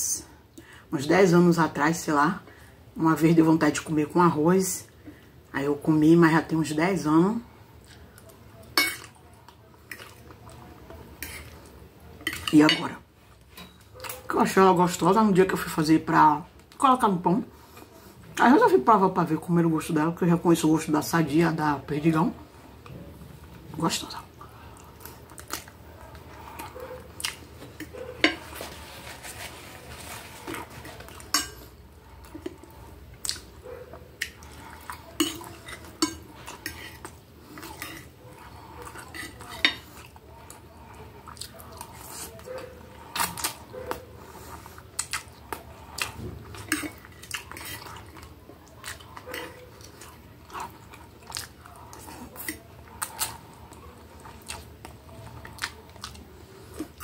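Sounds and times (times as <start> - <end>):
fork and knife scraping a plate: 11.2 - 11.6, 27.7 - 31.7, 34.5 - 40.1.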